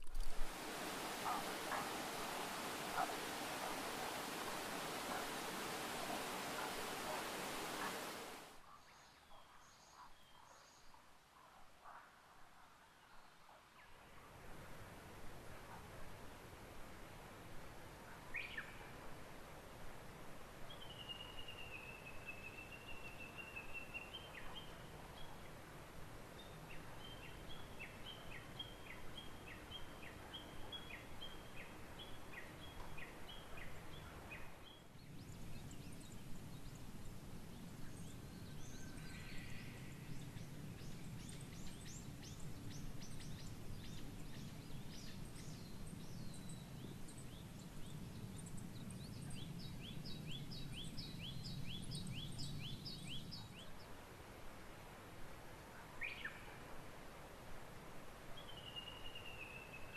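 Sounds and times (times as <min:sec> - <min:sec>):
low rumble of background noise: 0:00.0 - 0:09.5
birds chirping: 0:00.4 - 0:08.6.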